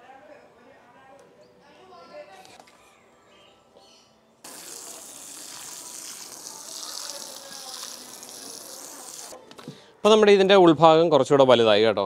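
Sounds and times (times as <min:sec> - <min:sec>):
water pouring from hose onto soil: 0:04.5 - 0:09.4.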